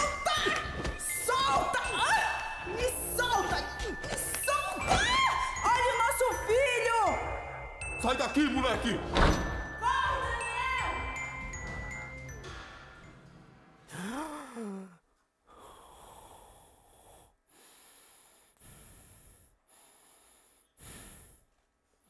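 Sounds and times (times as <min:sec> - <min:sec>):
man gasping: 0:13.9 - 0:21.5
man breathing heavily: 0:13.9 - 0:22.0.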